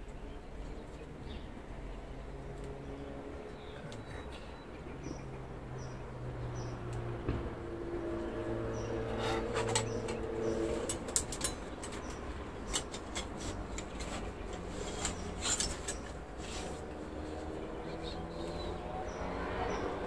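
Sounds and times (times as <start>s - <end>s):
clicks and scrapes of hand tools: 9.1s - 17.3s.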